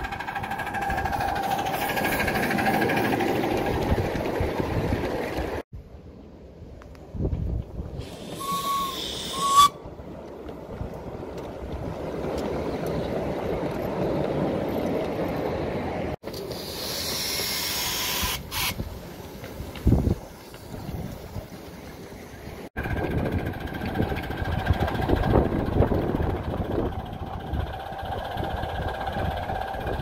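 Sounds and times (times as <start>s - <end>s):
train rumbling on track: 0.0s - 6.1s, 7.0s - 30.0s
steam hissing: 8.0s - 9.7s, 16.4s - 18.8s
steam locomotive whistle toots: 8.0s - 9.9s.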